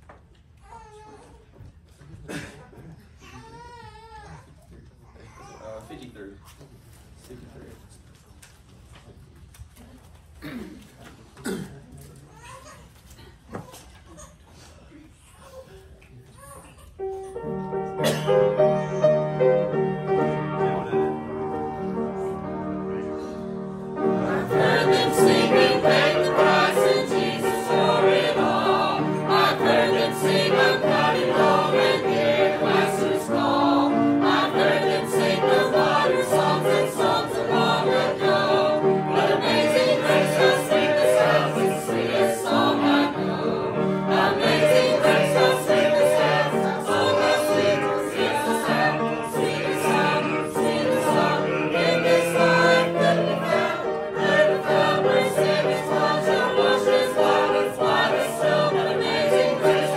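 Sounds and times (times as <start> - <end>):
choir singing a hymn: 17.4 - 59.9.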